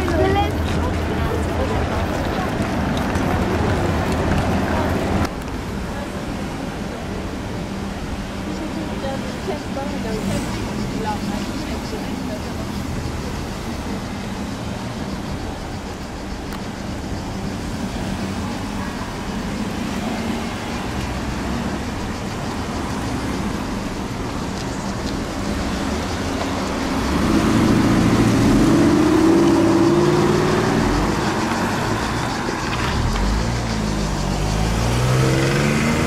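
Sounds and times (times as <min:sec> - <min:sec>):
cars driving past slowly: 0:00.0 - 0:36.0
car engine accelerating: 0:25.3 - 0:36.0.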